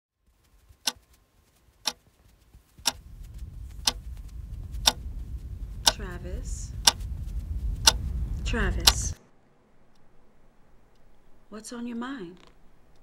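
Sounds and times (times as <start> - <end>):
wall clock ticking: 2.8 - 3.0, 3.8 - 4.0, 4.8 - 5.0, 7.8 - 8.0
low steady rumble: 2.8 - 13.0.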